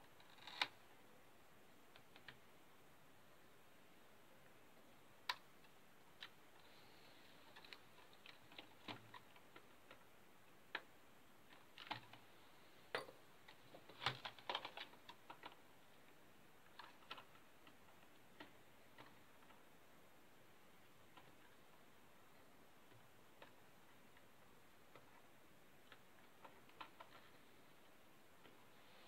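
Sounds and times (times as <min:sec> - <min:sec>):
laptop parts clicking: 0:12.9 - 0:15.6.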